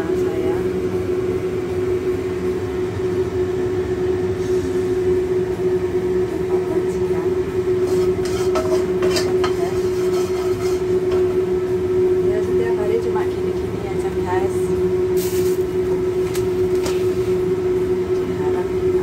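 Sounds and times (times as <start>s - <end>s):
kitchen extractor fan humming: 0.0s - 19.0s
food crackling in hot oil: 7.7s - 11.6s, 15.0s - 17.6s.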